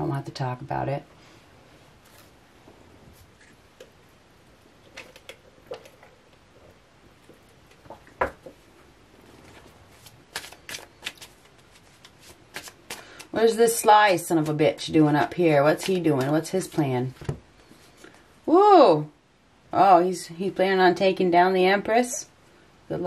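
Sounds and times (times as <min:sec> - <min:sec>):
cards being shuffled: 0:09.4 - 0:13.4, 0:15.2 - 0:18.0.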